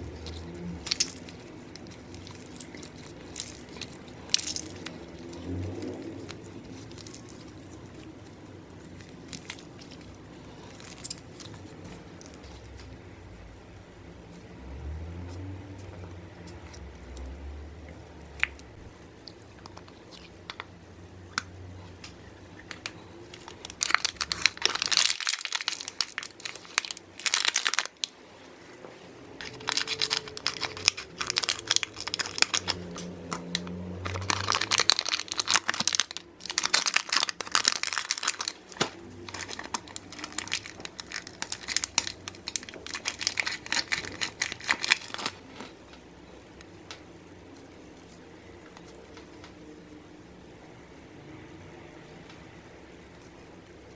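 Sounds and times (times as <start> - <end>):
wrapper crinkling and tearing: 0.0 - 12.9, 22.7 - 28.2, 29.4 - 45.9.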